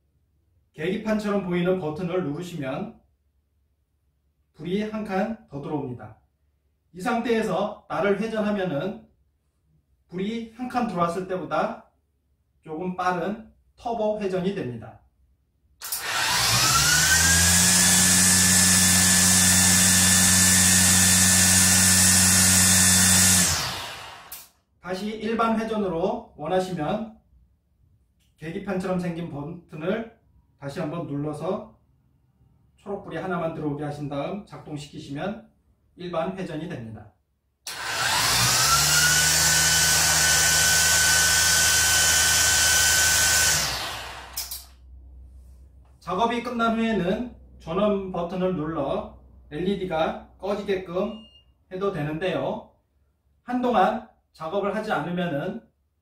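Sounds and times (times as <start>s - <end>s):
string trimmer whining: 15.8s - 24.4s, 37.7s - 44.7s.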